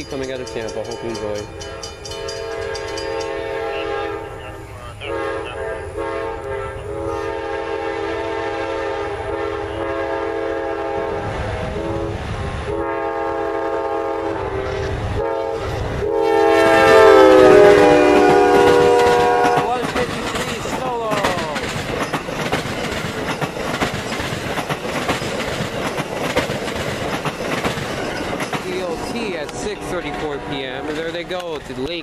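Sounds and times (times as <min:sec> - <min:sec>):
train rumbling on rails: 0:00.0 - 0:32.0
locomotive air horn blasts: 0:01.6 - 0:19.8, 0:28.8 - 0:31.2.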